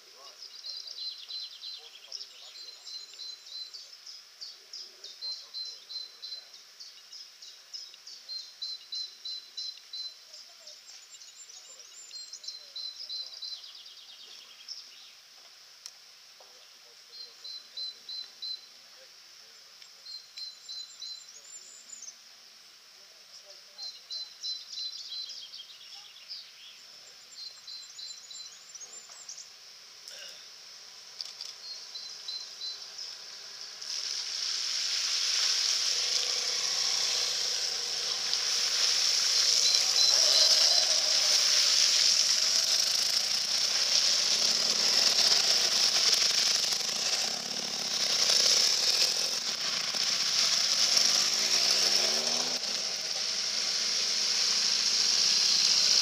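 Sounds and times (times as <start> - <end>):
birds chirping: 0.0 - 15.6, 16.4 - 22.3, 23.0 - 56.0
motorcycle engines: 30.5 - 56.0
tyres splashing water: 33.6 - 56.0.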